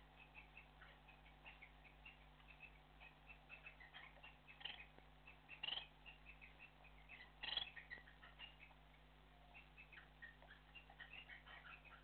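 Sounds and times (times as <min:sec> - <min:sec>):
parrots chirping: 0:00.0 - 0:12.0
parrot squawks: 0:00.4 - 0:08.8.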